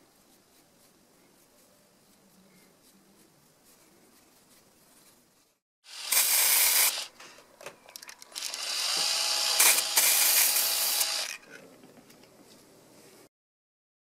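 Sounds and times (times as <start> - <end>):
aerosol spray can spraying: 5.9 - 7.1, 8.9 - 11.2.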